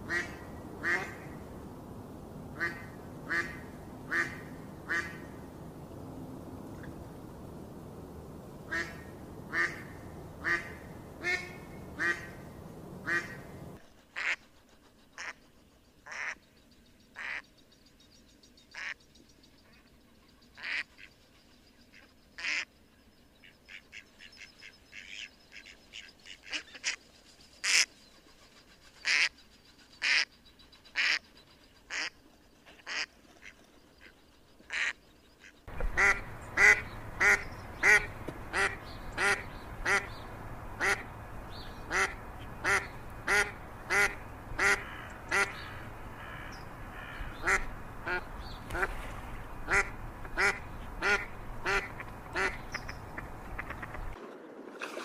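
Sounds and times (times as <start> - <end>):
steady background noise: 0.0 - 55.0
ducks quacking: 8.7 - 12.4, 13.0 - 13.4, 34.7 - 40.2, 40.8 - 41.1, 41.8 - 54.2.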